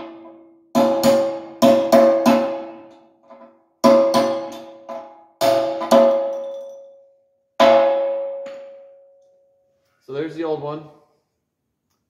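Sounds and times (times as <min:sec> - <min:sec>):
hammer striking steel punch: 0:00.0 - 0:03.0, 0:03.8 - 0:06.7, 0:07.6 - 0:09.0.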